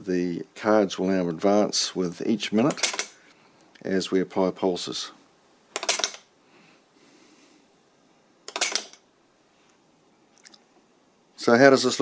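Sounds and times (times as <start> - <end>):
flip clock cards clattering: 2.7 - 3.2, 5.8 - 6.3, 8.5 - 9.0.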